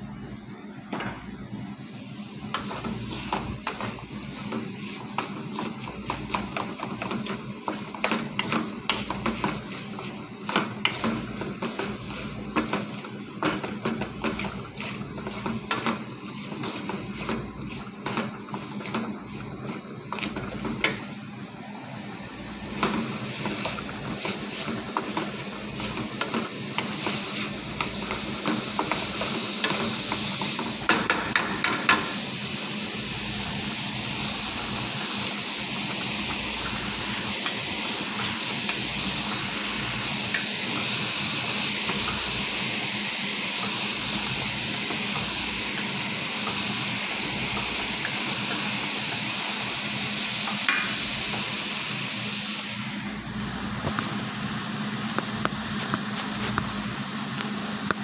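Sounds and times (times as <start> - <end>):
food sizzling in a wok: 0.0 - 58.0
wooden spatula scraping a wok: 2.3 - 21.2, 22.4 - 32.2, 55.0 - 56.9.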